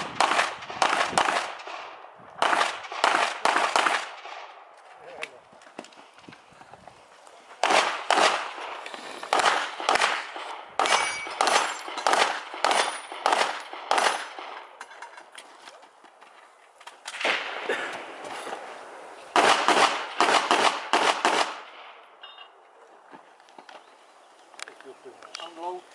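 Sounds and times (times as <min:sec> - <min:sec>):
handgun shots: 0:09.3 - 0:14.5.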